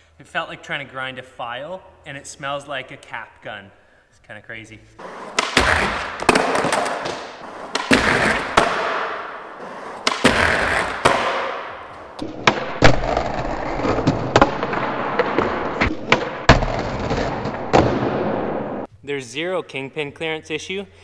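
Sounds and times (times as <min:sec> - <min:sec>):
skateboard grinding on ledge: 0:05.0 - 0:17.7
skateboard popping and landing: 0:05.0 - 0:18.6.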